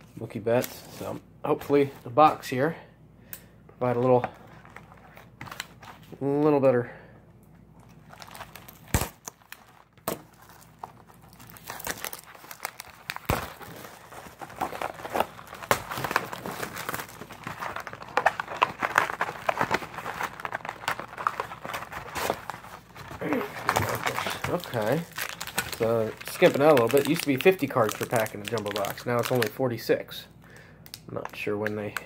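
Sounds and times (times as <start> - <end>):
plastic wrapping crinkling and tearing: 7.8 - 30.0.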